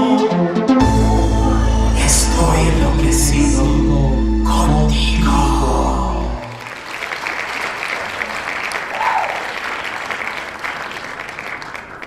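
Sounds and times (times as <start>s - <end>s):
audience clapping: 6.4s - 12.0s
person whooping: 8.9s - 9.6s.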